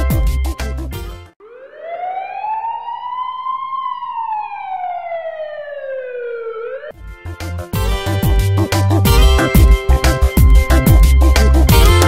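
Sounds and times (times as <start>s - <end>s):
police siren wail: 1.4s - 7.0s.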